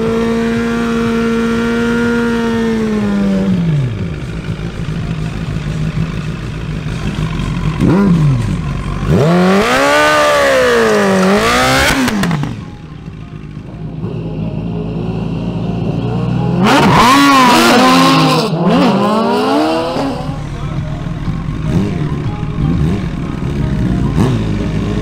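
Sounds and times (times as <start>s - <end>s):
motorcycle engines revving hard: 0.0s - 12.8s, 15.4s - 25.0s
motorcycle engine idling: 0.0s - 16.6s, 19.6s - 25.0s.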